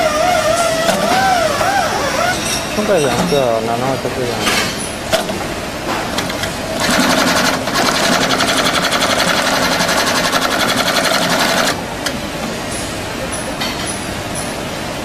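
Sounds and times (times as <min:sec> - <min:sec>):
sewing machine stitching: 0:06.8 - 0:11.8.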